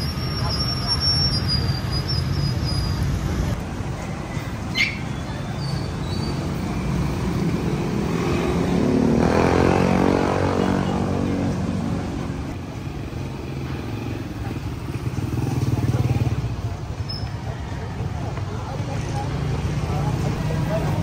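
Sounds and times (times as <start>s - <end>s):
street traffic rumble: 0.0s - 21.0s
motor vehicle passing: 4.6s - 12.6s.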